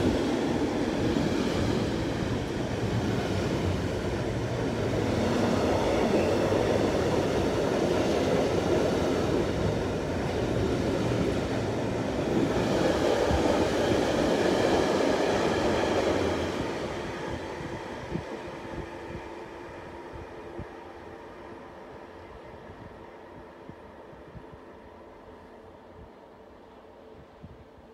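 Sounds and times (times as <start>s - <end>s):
freight train rolling past: 0.0s - 25.8s.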